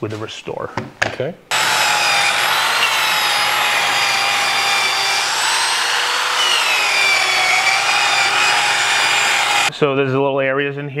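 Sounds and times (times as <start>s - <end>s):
power sander whining on wood: 1.5s - 9.7s.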